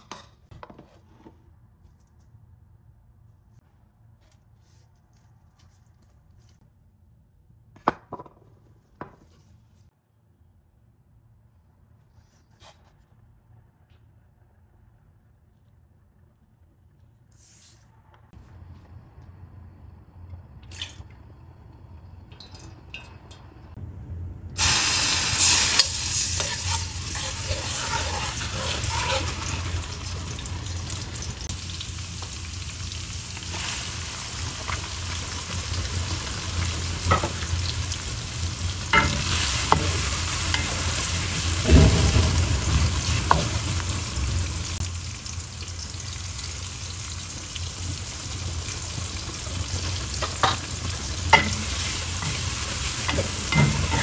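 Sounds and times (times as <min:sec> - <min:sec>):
onions sizzling in oil: 0:24.6 - 0:54.0.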